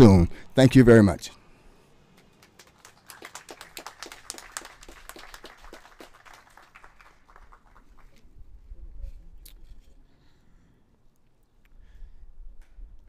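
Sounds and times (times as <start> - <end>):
audience clapping: 2.1 - 8.2.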